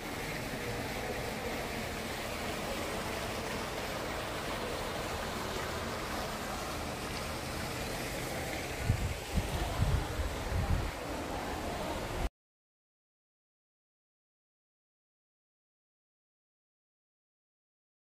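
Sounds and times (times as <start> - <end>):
fountain splashing into pool: 0.0 - 12.3.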